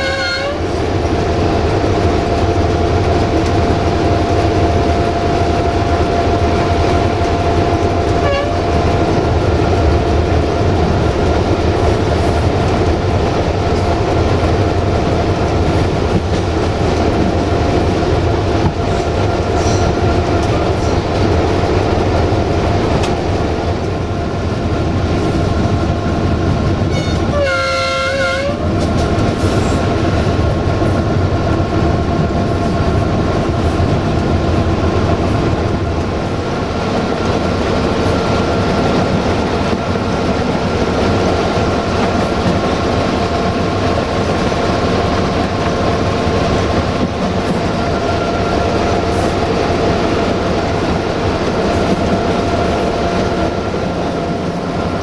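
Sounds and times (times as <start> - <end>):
train horn: 0.0 - 0.7, 8.2 - 8.7, 26.9 - 28.7, 47.8 - 48.8
locomotive engine drone: 0.0 - 55.0
track running noise: 0.0 - 55.0.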